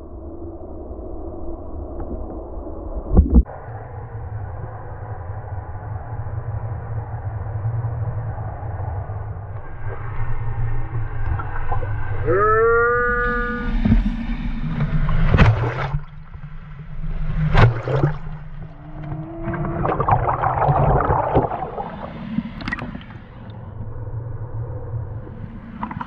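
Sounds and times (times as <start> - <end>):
surf and churning water: 6.5 - 26.0
rising pitched call: 12.2 - 13.8
water splashes hitting camera: 14.7 - 23.6.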